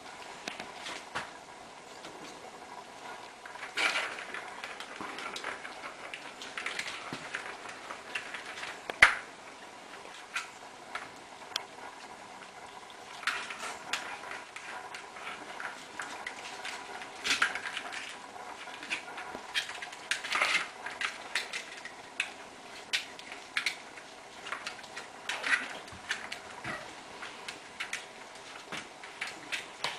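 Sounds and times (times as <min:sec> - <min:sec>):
ball clattering on plastic track: 0:03.5 - 0:09.3.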